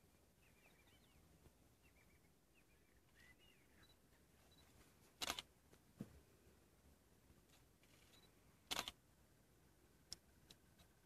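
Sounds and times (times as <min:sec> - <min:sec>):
faint high chirping: 0:00.3 - 0:04.8, 0:08.0 - 0:08.4
camera shutter clicks: 0:05.2 - 0:05.5, 0:08.7 - 0:09.0.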